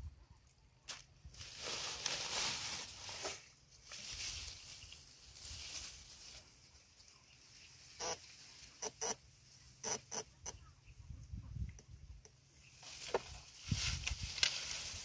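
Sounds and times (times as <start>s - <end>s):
rustling grass and wet mud: 0.0s - 15.0s.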